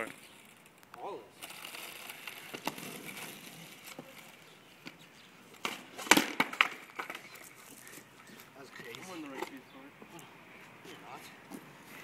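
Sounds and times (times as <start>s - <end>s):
skateboard tail snapping on asphalt: 1.4s - 5.0s, 5.6s - 7.5s
skateboard landing and clattering: 5.6s - 7.2s.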